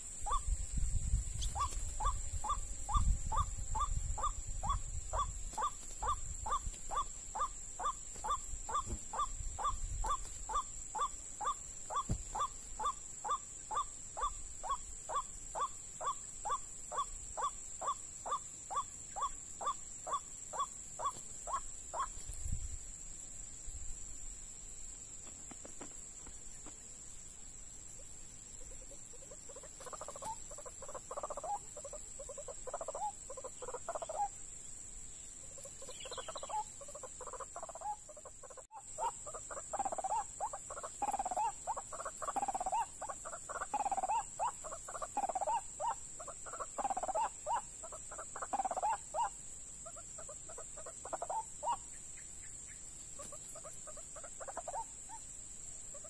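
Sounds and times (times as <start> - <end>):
waterhen calling: 1.5 - 22.1.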